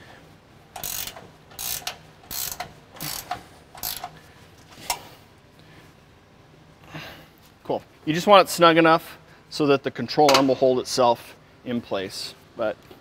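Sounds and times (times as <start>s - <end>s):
hand ratchet clicking: 0.8s - 4.2s.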